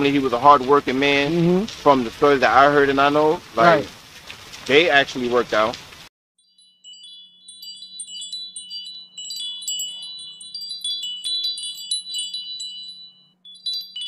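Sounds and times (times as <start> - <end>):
chimes tinkling: 6.4 - 14.0.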